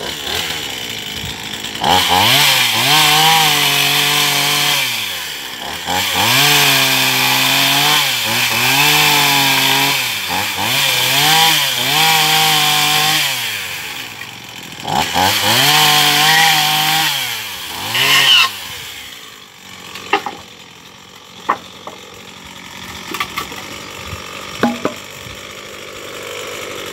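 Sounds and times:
chainsaw cutting wood: 0.0s - 26.9s
sharp knocks: 24.6s - 25.1s.

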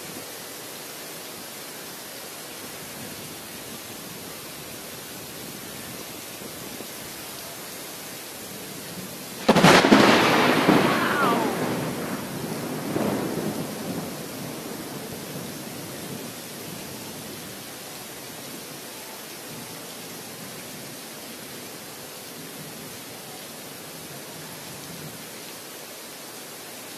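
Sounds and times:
heavy rain: 0.0s - 26.9s
thunderclap and rumble: 9.4s - 16.3s.

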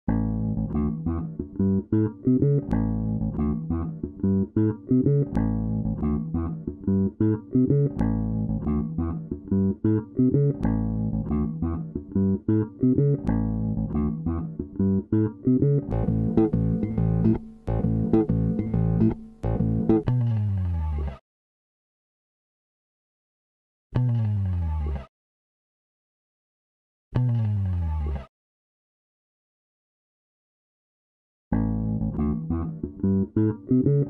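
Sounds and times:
plucked guitar music with bass: 0.1s - 21.2s, 24.0s - 25.0s, 27.2s - 28.2s, 31.5s - 34.0s.

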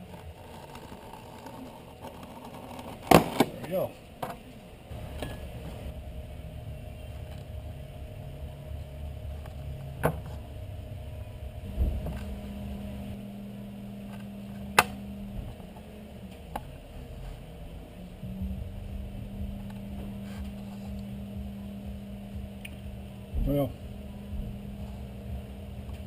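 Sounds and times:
higher hum: 0.0s - 26.0s
low mechanical hum: 0.0s - 26.0s
dull thump: 11.6s - 12.5s.

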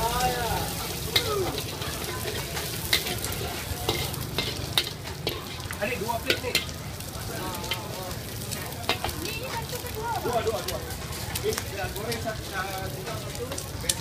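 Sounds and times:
spatula clinking against wok: 0.0s - 6.9s, 8.8s - 9.4s
metal spatula scraping wok: 0.0s - 13.7s
food sizzling in hot oil: 0.0s - 14.0s.

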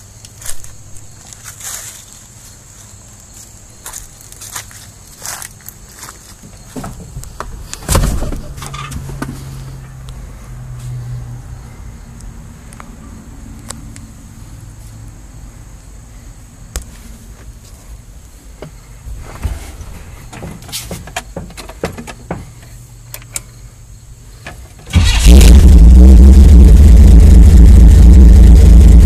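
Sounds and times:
car engine starting and running: 7.2s - 14.8s, 24.6s - 29.0s
light clicks and knocks: 20.3s - 23.5s.

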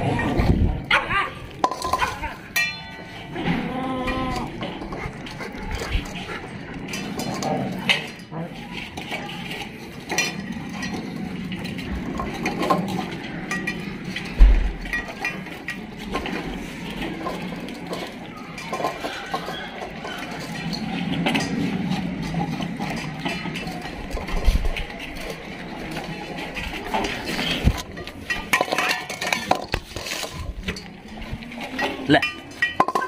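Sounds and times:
dogs eating from bowls: 0.0s - 33.0s
metal bowls clinking on tiles: 1.5s - 33.0s.

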